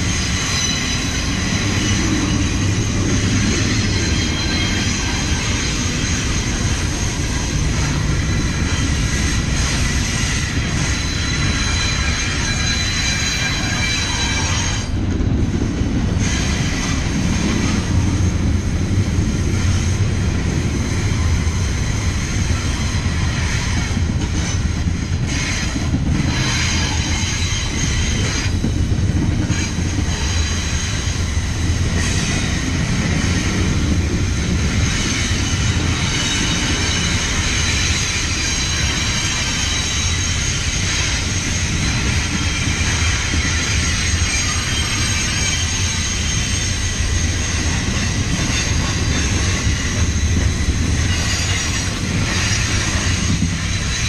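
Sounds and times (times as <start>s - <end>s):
high-pitched wheel squeal: 0.0s - 14.9s, 34.8s - 54.0s
train wheels rumbling on rails: 0.0s - 54.0s.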